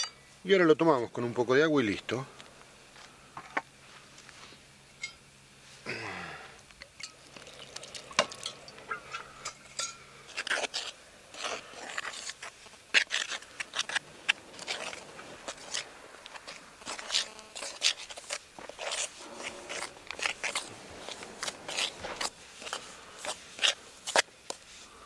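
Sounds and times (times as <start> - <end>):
dough mixed by hand in a pot: 7.3 - 24.9.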